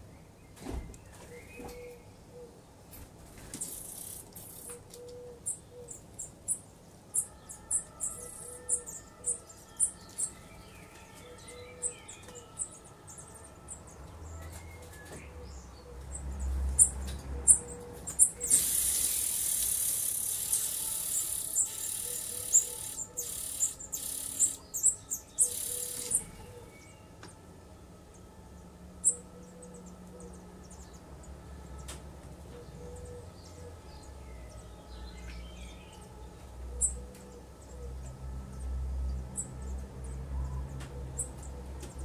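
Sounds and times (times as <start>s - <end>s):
nestlings cheeping: 18.2s - 26.3s
hissing begging chorus: 18.4s - 24.6s.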